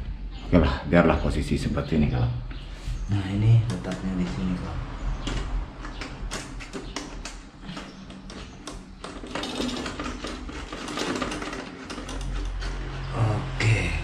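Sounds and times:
metal parts clicking and tapping: 5.2s - 13.0s.

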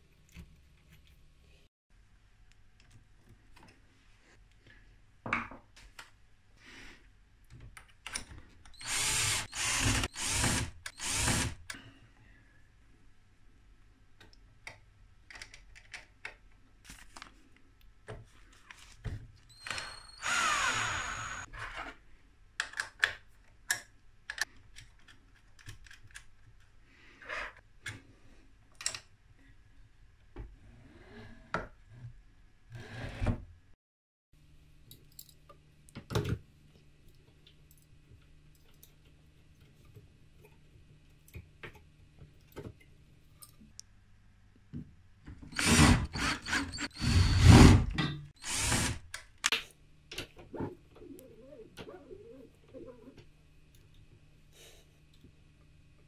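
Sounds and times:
cordless drill driving screws: 8.8s - 11.7s, 19.5s - 21.5s, 45.5s - 47.8s, 48.4s - 49.0s
clicks and knocks of handling parts: 22.6s - 26.8s.

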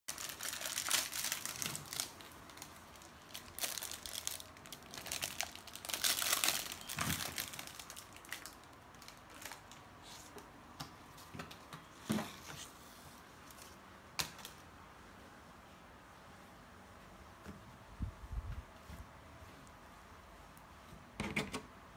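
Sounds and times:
plastic packaging crinkling: 0.1s - 10.3s.

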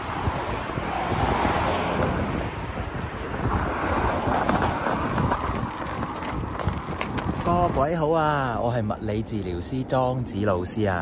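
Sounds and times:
road traffic: 0.0s - 11.0s
wind buffeting microphone: 0.0s - 11.0s.

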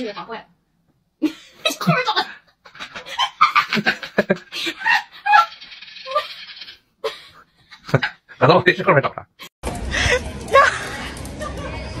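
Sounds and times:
person laughing: 1.2s - 5.5s.

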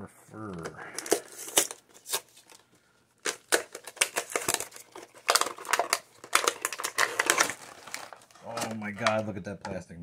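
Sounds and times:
plastic bags crinkling: 1.0s - 9.2s
cardboard ripping: 3.2s - 8.8s.

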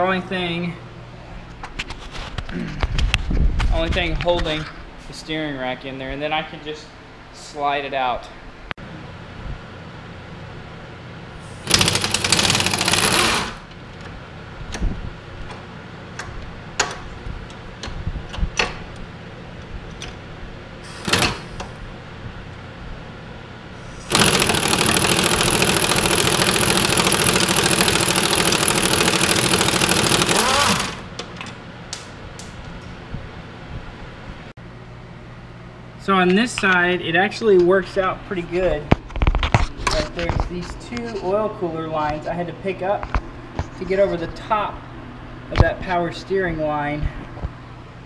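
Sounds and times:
power wrench running: 11.5s - 13.7s, 20.9s - 21.7s, 23.9s - 31.1s.

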